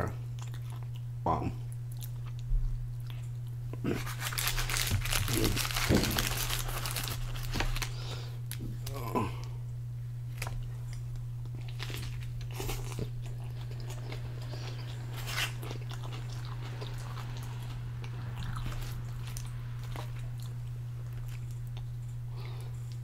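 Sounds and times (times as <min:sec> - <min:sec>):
close chewing and mouth sounds: 0:00.0 - 0:09.6, 0:10.3 - 0:23.0
low hum: 0:00.0 - 0:23.0
wrapper clicks and crackles: 0:04.0 - 0:07.9.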